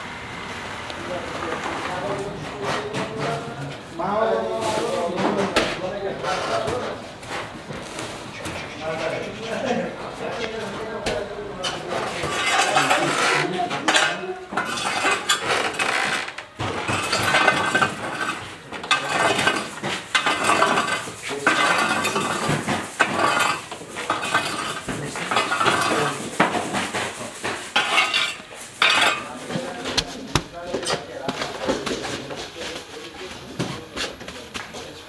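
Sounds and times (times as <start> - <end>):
metal kitchenware clattering: 11.6 - 29.9
scraping: 11.6 - 32.8.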